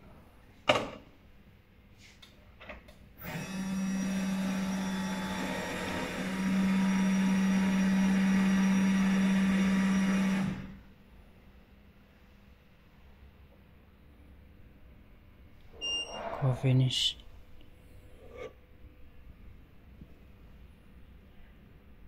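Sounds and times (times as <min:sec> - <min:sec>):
vending machine motors humming: 0:03.2 - 0:10.8.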